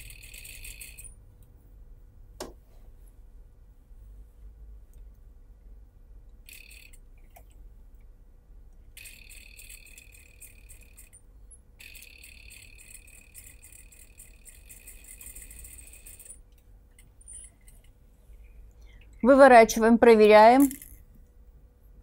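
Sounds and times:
sewing machine stitching rattle: 0:11.8 - 0:16.4.

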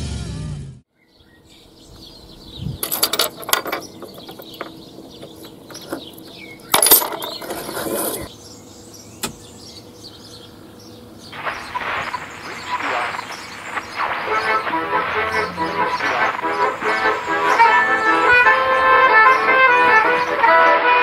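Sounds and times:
keys jingling in door lock: 0:02.8 - 0:07.8.

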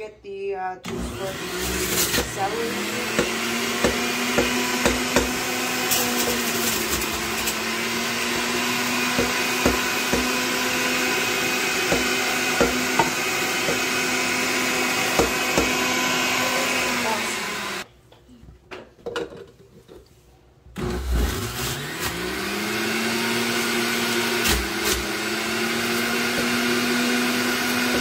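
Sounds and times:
electric juicer motor running: 0:00.9 - 0:17.9, 0:20.8 - 0:28.0.

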